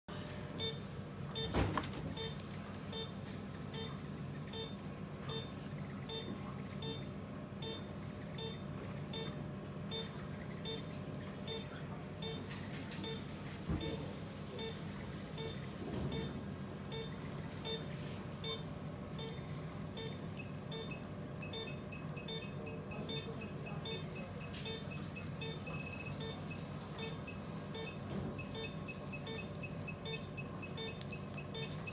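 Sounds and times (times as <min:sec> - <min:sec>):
low equipment hum: 0:00.1 - 0:31.9
patient monitor beeping: 0:00.1 - 0:31.9
higher faster beep: 0:20.0 - 0:31.9.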